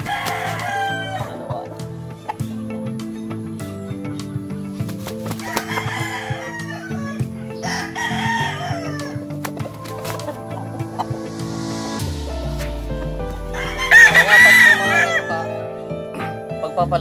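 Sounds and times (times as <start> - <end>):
rooster crowing: 0.0 - 1.7, 5.4 - 9.3, 13.5 - 15.6
background music of sustained notes: 0.0 - 17.0.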